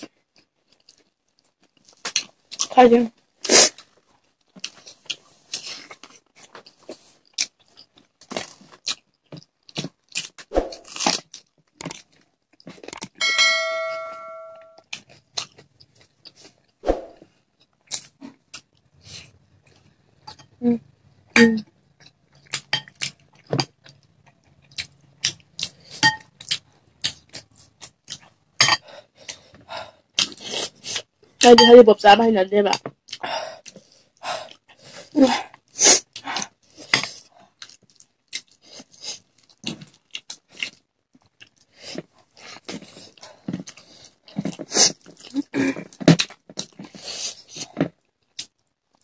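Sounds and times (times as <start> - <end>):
chewing: 0.0 - 2.7, 3.6 - 13.2, 14.8 - 20.5, 21.9 - 31.1, 32.8 - 49.0
bell-like chime: 13.2 - 14.8.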